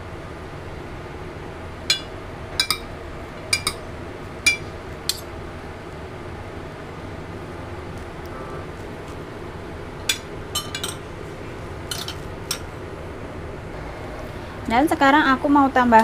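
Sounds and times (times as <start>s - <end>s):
metal spoon clinking on plate: 3.5s - 3.8s, 10.1s - 11.0s, 11.9s - 12.7s.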